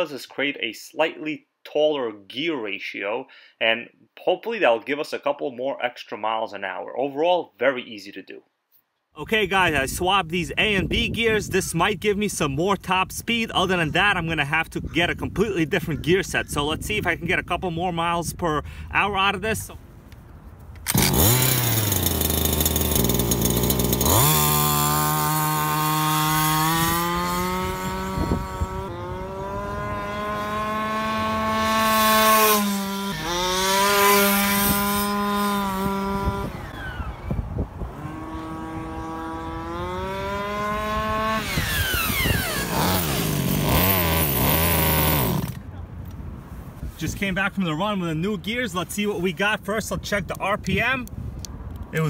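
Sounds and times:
small two-stroke engine revving: 20.9 - 45.6.

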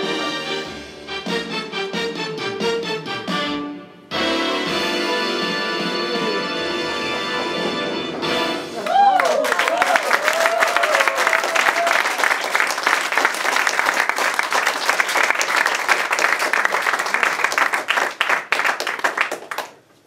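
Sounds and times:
audience applauding: 8.7 - 19.8.

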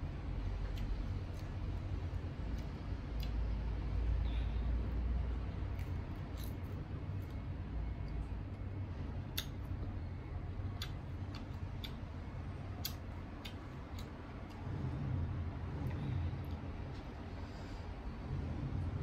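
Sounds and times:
low rumble: 12.2 - 19.0.

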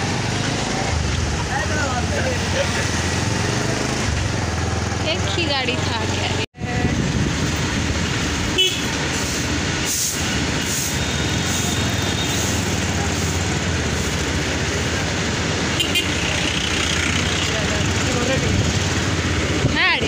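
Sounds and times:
motorcycle engine: 0.0 - 7.7, 15.7 - 20.0
rushing wind: 0.0 - 20.0.

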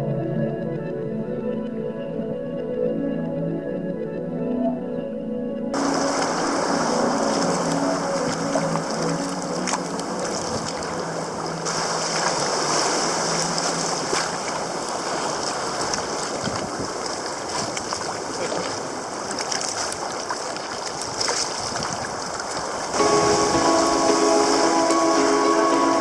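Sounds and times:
water sloshing around kayak hull: 5.8 - 25.4
waves breaking against rocks: 5.8 - 26.0.

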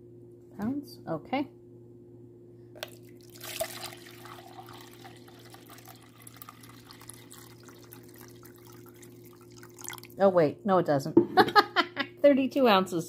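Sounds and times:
faint low hum: 0.0 - 13.0
water pouring into plastic jug: 2.8 - 10.2.

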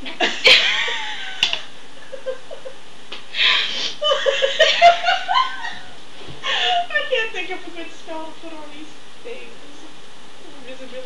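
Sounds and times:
giggling and laughter: 0.0 - 2.8, 3.4 - 7.3.

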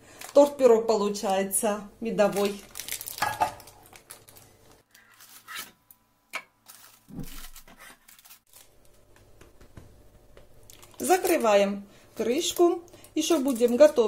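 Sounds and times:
baking paper rustling: 0.1 - 5.8, 6.6 - 9.1, 10.7 - 14.0.

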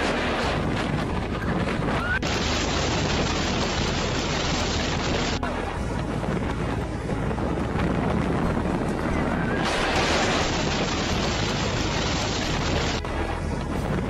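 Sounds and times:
heavy rain: 0.0 - 6.0, 9.6 - 13.1
strong wind: 0.0 - 14.0
wind buffeting microphone: 0.0 - 14.0.

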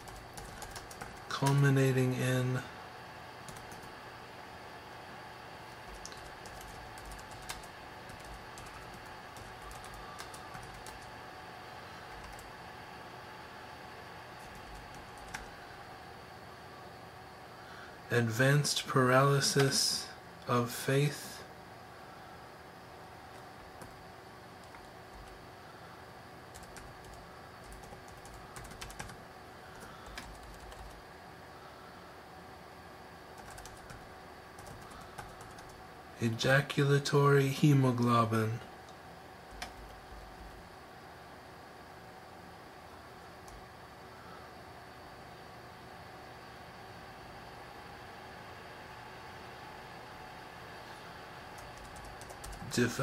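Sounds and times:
computer keyboard typing: 0.0 - 1.7, 3.4 - 3.9, 5.7 - 11.1, 12.1 - 12.5, 14.4 - 15.6, 24.6 - 25.4, 26.5 - 31.0, 33.4 - 35.8, 39.5 - 40.6, 43.4 - 43.6, 51.6 - 53.0
faint room hum: 0.0 - 53.0
steady background hiss: 0.0 - 53.0.

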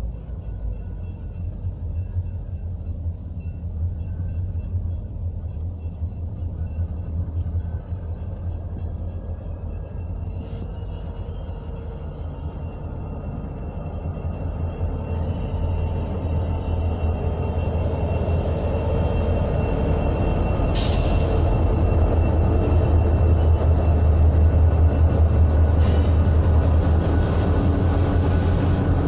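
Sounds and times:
diesel locomotive engine rumble: 0.0 - 29.0.

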